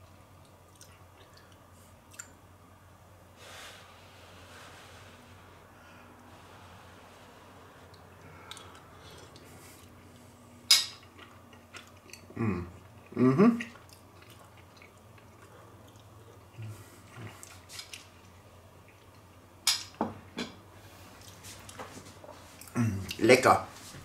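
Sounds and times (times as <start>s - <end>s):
short vocal sounds: 12.3s - 13.7s.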